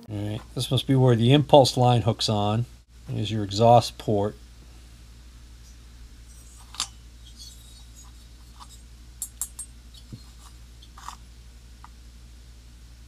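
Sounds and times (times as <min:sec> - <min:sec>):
steady low hum: 0:00.0 - 0:13.0
soft handling clicks and rubs: 0:05.6 - 0:08.9, 0:09.9 - 0:11.2.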